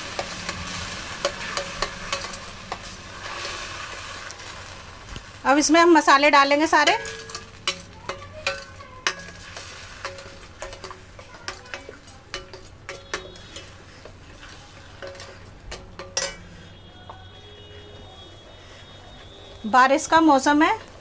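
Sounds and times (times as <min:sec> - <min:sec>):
low sizzle: 0:00.0 - 0:21.0
spoon clinking against pan: 0:01.2 - 0:03.6, 0:06.7 - 0:17.3
spoon scraping paste in pan: 0:06.8 - 0:17.8.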